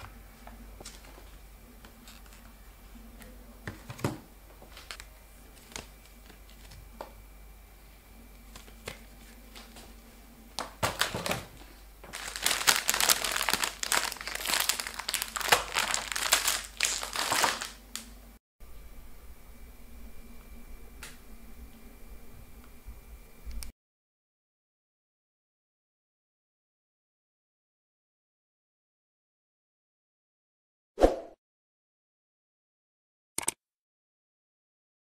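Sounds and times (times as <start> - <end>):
packages knocking on tabletop: 10.6 - 11.5
plastic snack bags crinkling: 10.6 - 18.2.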